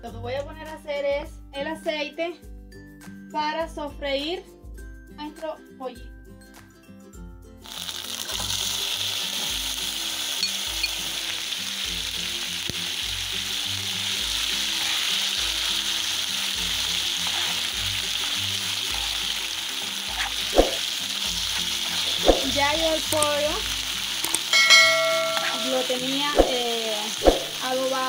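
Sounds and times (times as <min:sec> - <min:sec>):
chicken sizzling in hot oil: 0:07.6 - 0:28.0.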